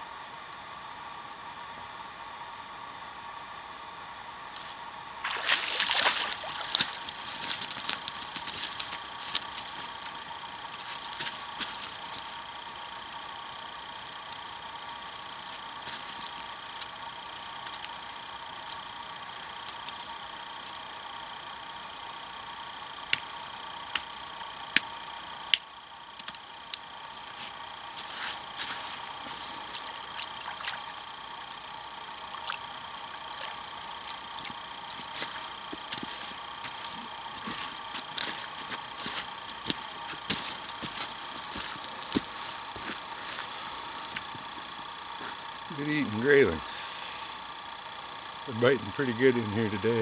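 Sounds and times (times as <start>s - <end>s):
fish splashing in water: 5.2s - 8.2s, 29.8s - 31.0s, 32.3s - 34.6s.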